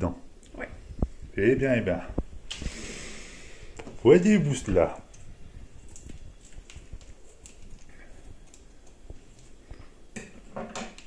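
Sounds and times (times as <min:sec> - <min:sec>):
sachet crinkling: 0:04.2 - 0:09.8.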